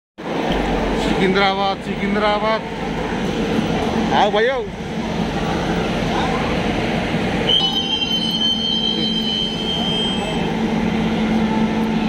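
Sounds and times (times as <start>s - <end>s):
train coach rumbling: 0.2s - 12.0s
wheels squealing: 7.5s - 10.6s.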